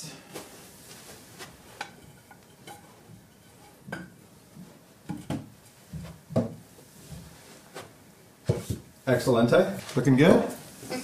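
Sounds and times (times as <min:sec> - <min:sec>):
wooden board knocking against cabinets: 0:05.1 - 0:06.6.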